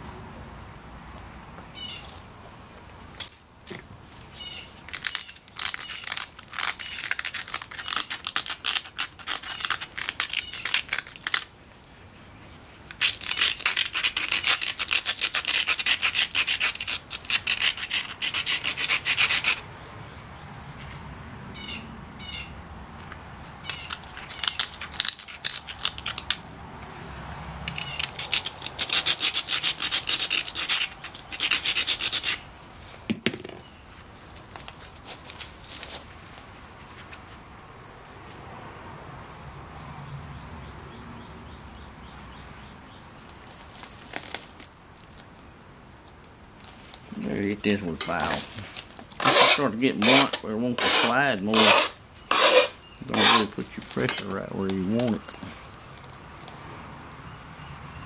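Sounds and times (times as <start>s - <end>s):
stone scraping with abrader: 12.9s - 19.6s, 47.2s - 55.4s.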